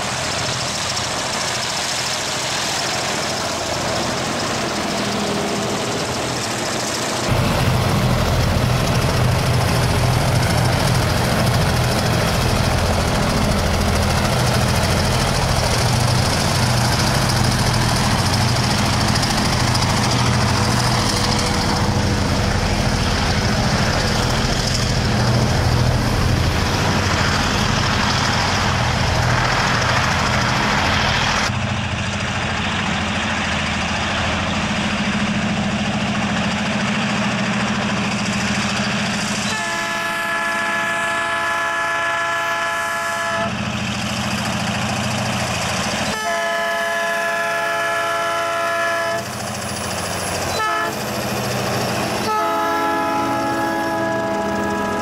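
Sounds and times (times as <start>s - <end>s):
freight train approaching: 0.0s - 55.0s
truck engine passing: 4.2s - 33.6s
locomotive air horn: 39.4s - 43.6s, 46.0s - 49.3s, 50.5s - 51.0s, 52.2s - 55.0s.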